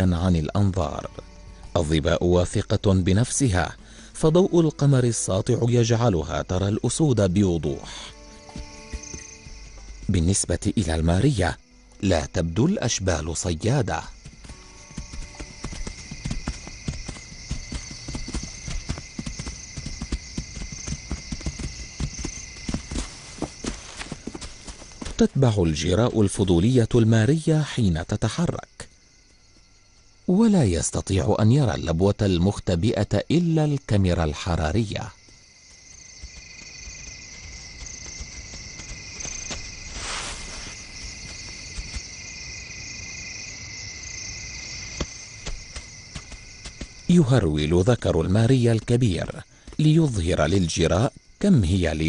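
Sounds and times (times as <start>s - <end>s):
night insects chirping: 0.0s - 52.0s
hoofbeats on dry ground: 7.7s - 10.9s, 13.3s - 26.4s, 35.1s - 43.0s, 44.7s - 50.8s.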